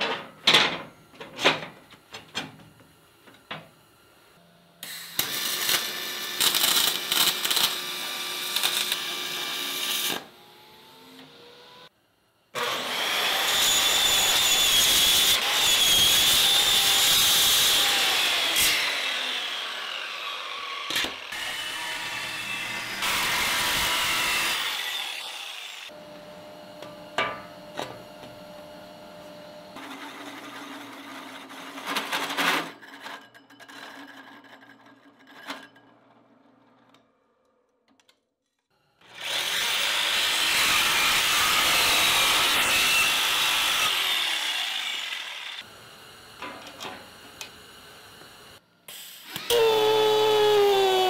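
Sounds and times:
power tools grating on metal: 12.6s - 28.1s, 39.1s - 45.7s, 49.4s - 51.0s.

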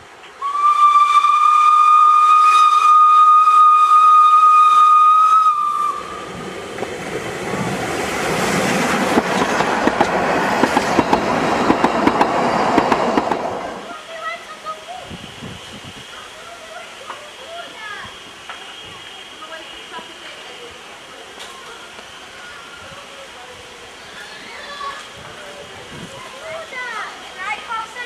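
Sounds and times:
steam whistle blast: 0.4s - 6.3s
train wheels clattering on rails: 6.2s - 13.9s.

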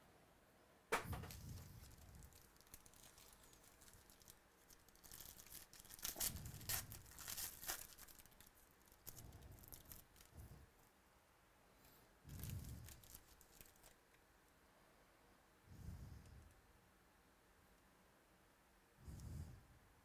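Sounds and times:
foil wrapper tearing and crinkling: 1.2s - 10.3s, 12.3s - 14.0s.

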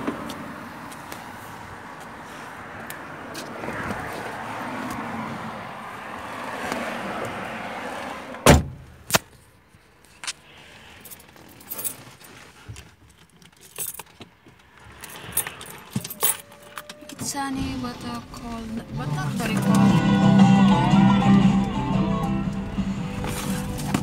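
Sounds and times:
outdoor noise: 0.0s - 24.0s
car door shutting: 8.3s - 9.0s
keys jingling: 11.0s - 12.3s, 13.1s - 14.3s, 15.0s - 17.1s.

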